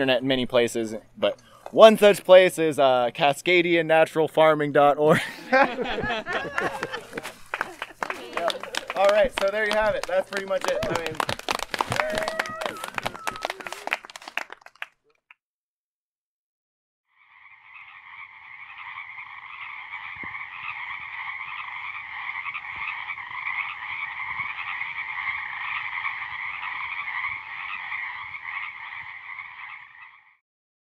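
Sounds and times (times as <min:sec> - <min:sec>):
chorus of frogs calling: 0:17.1 - 0:30.4.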